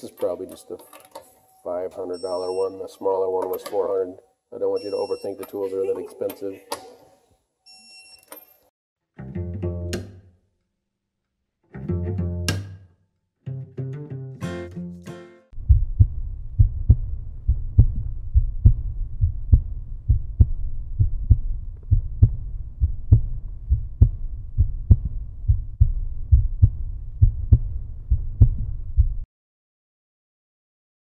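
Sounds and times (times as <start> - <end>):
low rumble: 15.6 - 29.2
deep heartbeat-like thuds: 15.6 - 29.3.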